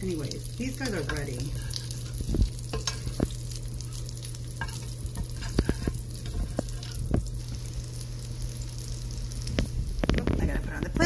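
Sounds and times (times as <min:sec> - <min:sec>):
bacon sizzling in pan: 0:00.0 - 0:11.0
metal spatula scraping pan: 0:00.8 - 0:03.2, 0:04.6 - 0:07.0.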